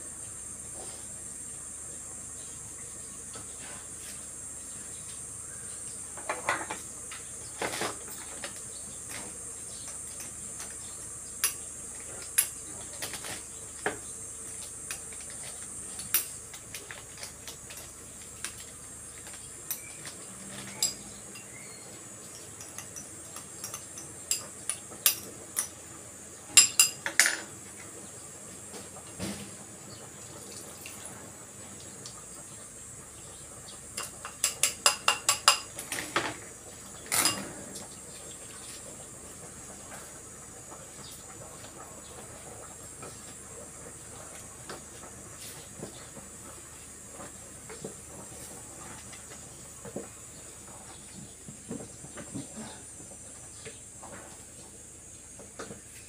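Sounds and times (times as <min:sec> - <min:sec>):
utensils clinking against pans: 0:19.7 - 0:25.8, 0:26.6 - 0:27.5, 0:34.0 - 0:36.4, 0:37.0 - 0:37.7.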